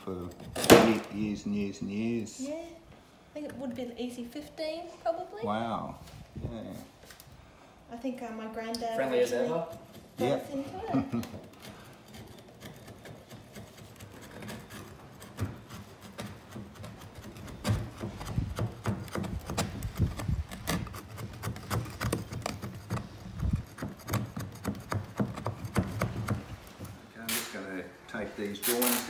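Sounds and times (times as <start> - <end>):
metal scraper scraping wood: 11.4 - 26.6.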